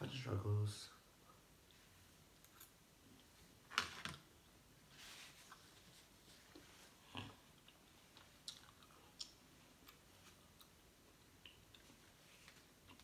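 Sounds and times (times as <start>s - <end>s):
faint chewing: 6.5s - 13.0s.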